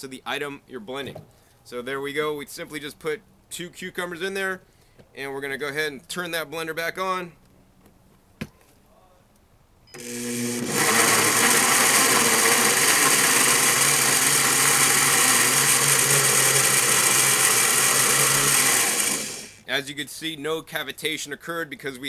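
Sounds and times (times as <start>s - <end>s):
blender running: 10.0s - 19.6s.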